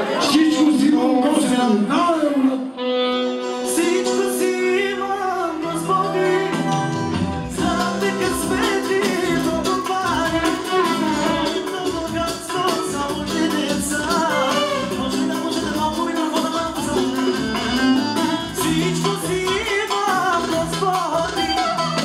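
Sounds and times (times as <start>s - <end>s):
percussion beat with melody: 6.4s - 22.0s.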